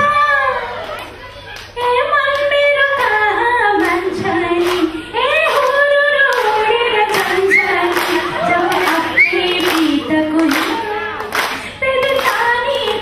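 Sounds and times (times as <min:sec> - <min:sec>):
woman singing into a microphone: 0:01.8 - 0:13.0
audience hand claps: 0:03.8 - 0:13.0.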